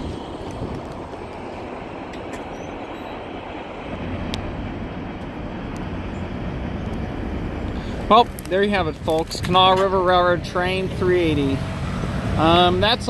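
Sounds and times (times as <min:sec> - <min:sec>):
sharp rail clicks: 0:00.0 - 0:04.5, 0:06.8 - 0:10.2
train wheels rumbling on rail: 0:00.0 - 0:13.0.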